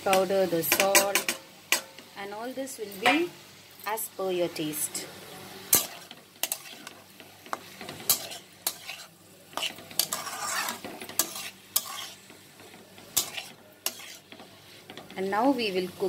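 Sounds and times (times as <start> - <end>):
metal spatula scraping a pan: 0.0 - 2.1, 5.6 - 15.8
light sizzle of frying: 0.0 - 16.0.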